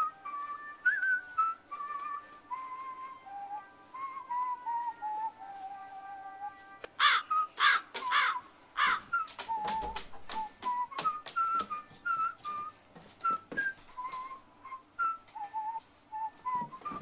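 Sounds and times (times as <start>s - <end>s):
thin whistled tune: 0.0s - 7.6s, 9.1s - 17.0s
crow calling harshly: 7.0s - 9.0s
sharp clicks: 7.6s - 8.2s, 9.2s - 11.8s.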